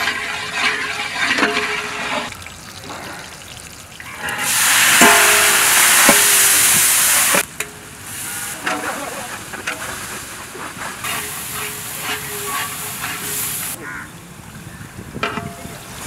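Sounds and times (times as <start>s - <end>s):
metal spatula scraping pot: 0.0s - 2.3s, 11.0s - 13.8s
onions frying in oil: 0.0s - 9.5s
loud sizzle of tomatoes: 4.1s - 10.4s, 11.0s - 13.8s.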